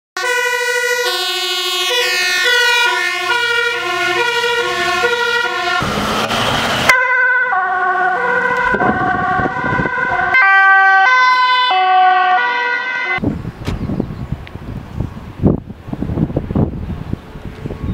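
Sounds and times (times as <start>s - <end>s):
two-tone emergency sirens: 0.2s - 13.2s
wind noise: 8.2s - 10.6s, 13.2s - 17.9s.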